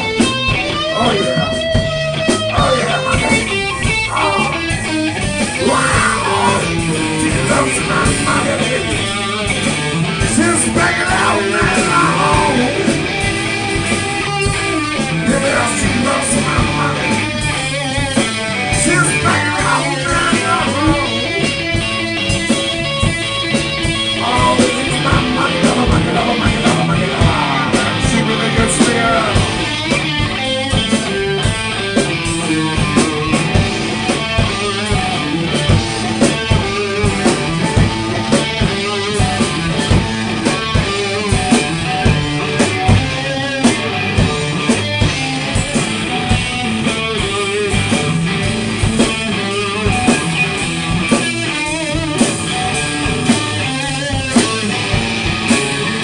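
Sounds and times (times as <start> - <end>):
drum kit: 0.0 - 56.0
electric guitars: 0.0 - 56.0
person singing lead vocals: 0.8 - 1.8, 2.4 - 14.1, 14.7 - 21.7, 24.0 - 30.0.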